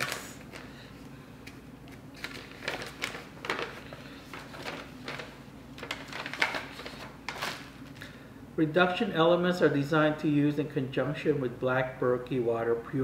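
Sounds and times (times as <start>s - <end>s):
paper rustling and crinkling: 0.0s - 1.0s, 1.9s - 8.0s.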